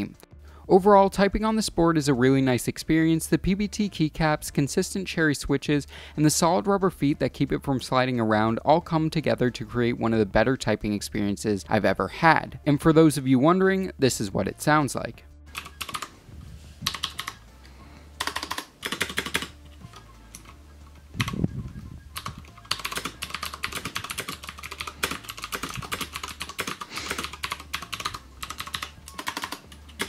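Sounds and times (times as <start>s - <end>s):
clicky keyboard typing: 15.5s - 16.1s, 16.8s - 17.4s, 18.2s - 20.6s, 21.2s - 30.0s.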